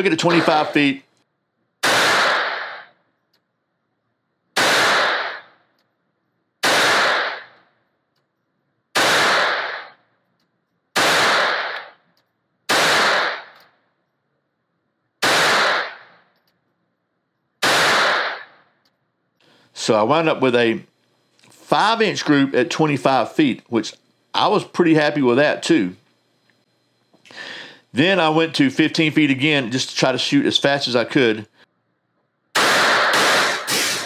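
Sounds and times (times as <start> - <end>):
pistol shots echoing indoors: 0.2 - 0.8, 1.8 - 3.0, 4.6 - 5.6, 6.6 - 7.6, 8.9 - 10.1, 10.9 - 12.0, 12.7 - 13.6, 15.2 - 16.3, 17.6 - 18.7, 32.5 - 34.0.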